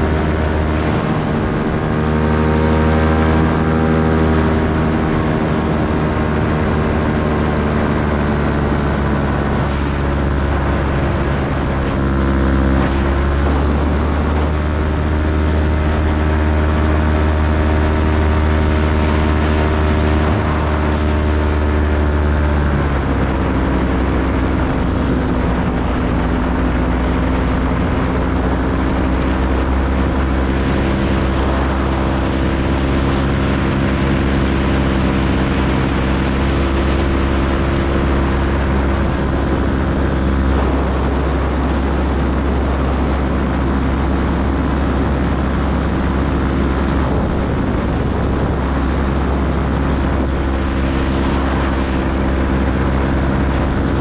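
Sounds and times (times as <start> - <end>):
paramotor engine and propeller: 0.0 - 54.0.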